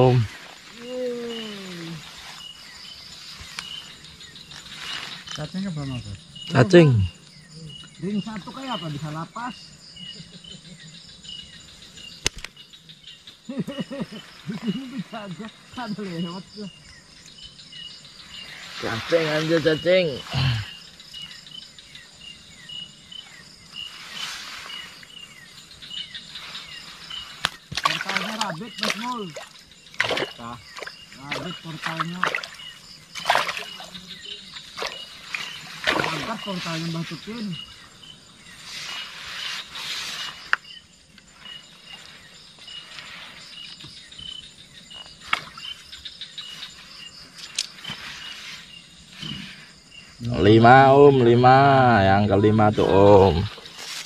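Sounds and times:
insects chirping: 0:00.0 - 0:54.0.

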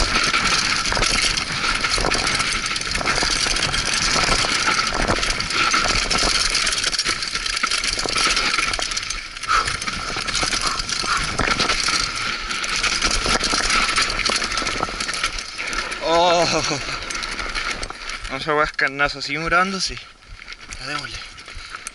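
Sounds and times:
bike clattering and rattling: 0:00.0 - 0:21.9
tyres crunching over gravel: 0:00.0 - 0:21.9.

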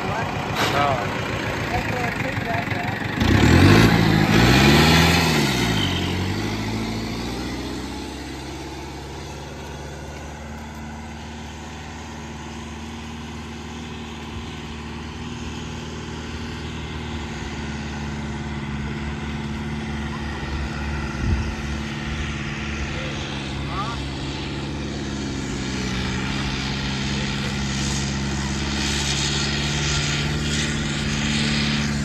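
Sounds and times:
tractor diesel engine revving: 0:00.0 - 0:32.0.

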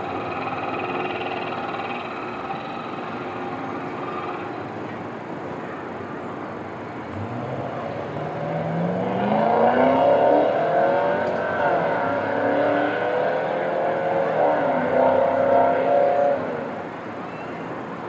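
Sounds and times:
steady background hum: 0:00.0 - 0:08.3
vehicle accelerating: 0:07.1 - 0:16.9.

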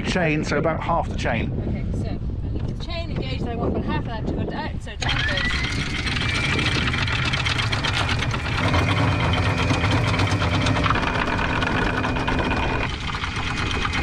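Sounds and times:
anchor windlass motor running: 0:01.9 - 0:14.0
boat engine idling: 0:05.0 - 0:14.0.

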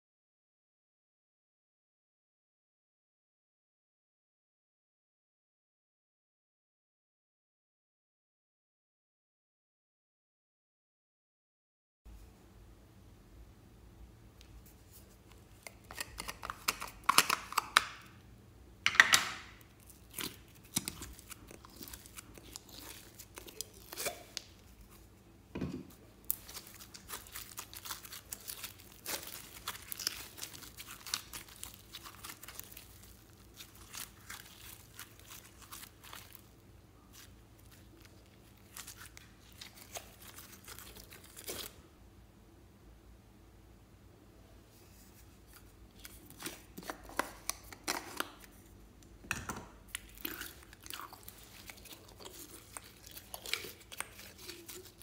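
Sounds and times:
slime crackling and tearing: 0:19.6 - 0:25.0, 0:26.2 - 0:41.8, 0:49.9 - 0:55.0.

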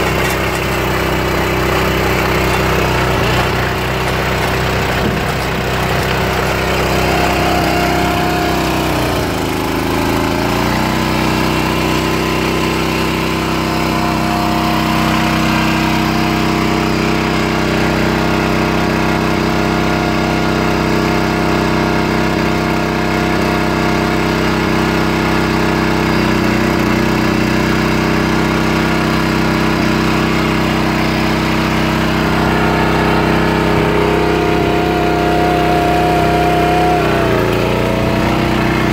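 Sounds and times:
digging chain working: 0:00.0 - 0:18.0, 0:29.3 - 0:38.9
trencher engine running: 0:00.0 - 0:38.9.

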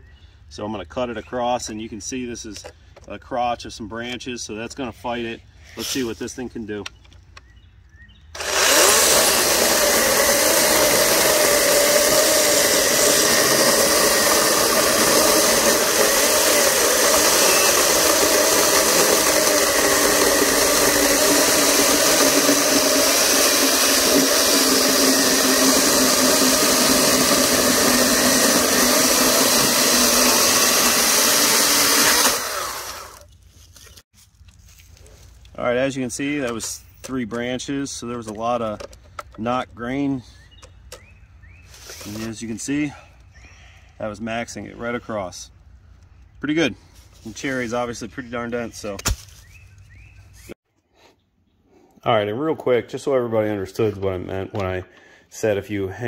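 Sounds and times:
electric chainsaw cutting log: 0:08.4 - 0:33.3.

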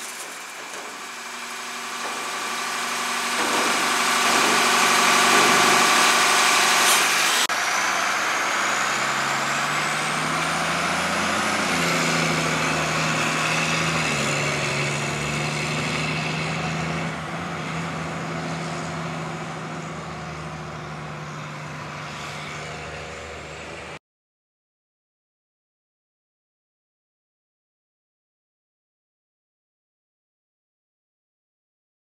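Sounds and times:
garbage truck engine running: 0:00.0 - 0:24.0.

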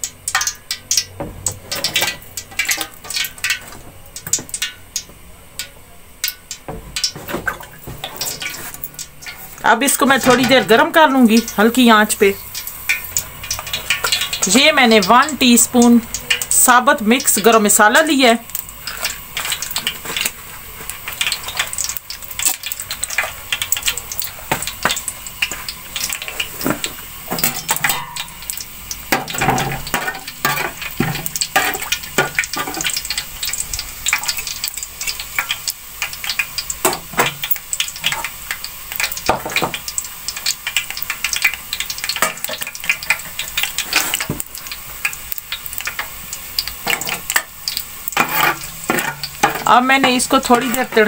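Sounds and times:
spices sizzling and popping in oil: 0:00.0 - 0:51.0.

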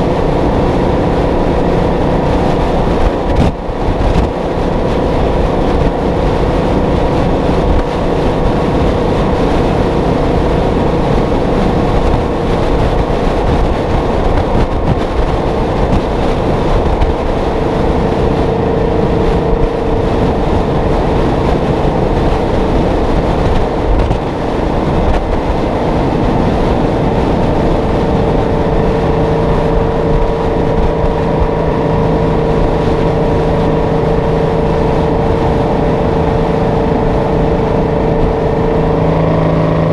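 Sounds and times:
diesel engine cruising: 0:00.0 - 0:39.9
road noise: 0:00.0 - 0:39.9
steady tone: 0:00.0 - 0:39.9
wind noise: 0:00.0 - 0:39.9.

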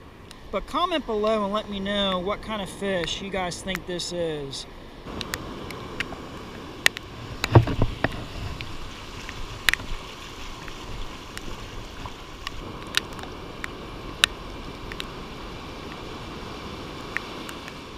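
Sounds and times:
ocean surf: 0:00.0 - 0:17.9
wind: 0:00.0 - 0:17.9.

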